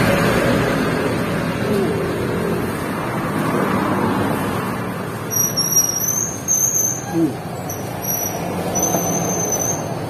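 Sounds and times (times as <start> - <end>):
road traffic passing: 0.0 - 10.0
high rising squeal: 5.3 - 10.0.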